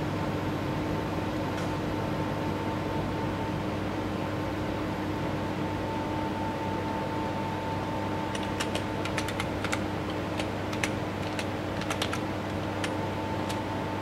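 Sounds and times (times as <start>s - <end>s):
keyboard keystroke clicks: 8.3s - 13.7s.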